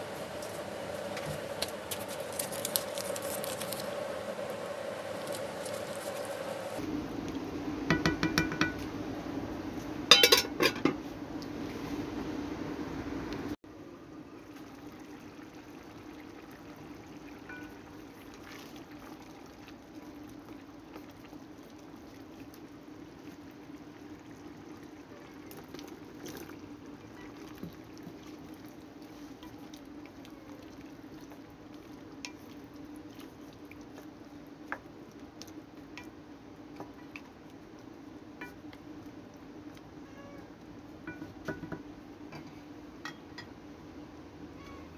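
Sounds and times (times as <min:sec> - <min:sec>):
steady low hum: 0:00.0 - 0:14.5
stew bubbling in a pot: 0:13.9 - 0:43.9.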